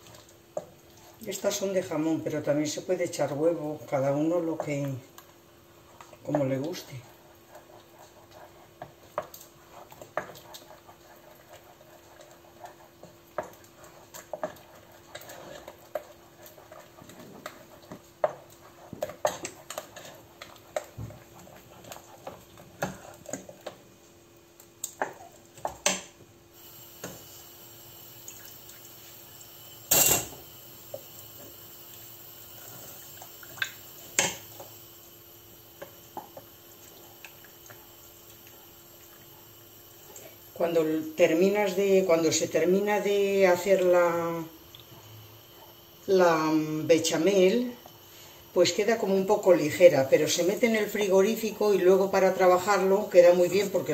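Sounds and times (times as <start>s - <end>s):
wooden spoon scraping a pot: 0.1s - 24.0s.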